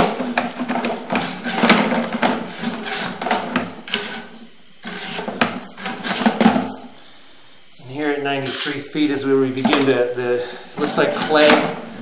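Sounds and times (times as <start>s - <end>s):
camera scraping in pipe: 2.5s - 6.8s, 8.4s - 9.0s, 10.8s - 11.6s.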